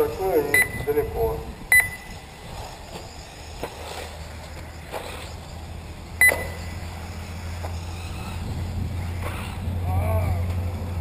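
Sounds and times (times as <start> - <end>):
steady low hum: 0.0 - 11.0
sharp electronic beep: 0.5 - 1.0, 1.7 - 2.2, 6.2 - 6.9.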